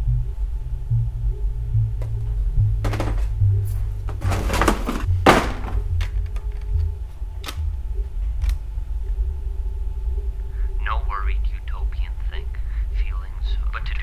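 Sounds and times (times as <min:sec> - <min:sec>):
low steady drone: 0:00.0 - 0:14.0.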